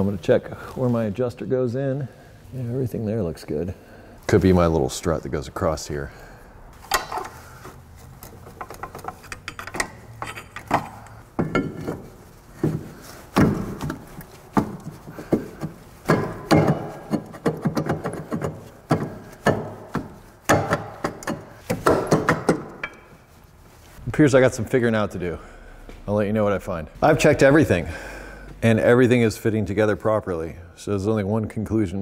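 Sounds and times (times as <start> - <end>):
brake rotor knocking and scraping: 6.8 - 23.3.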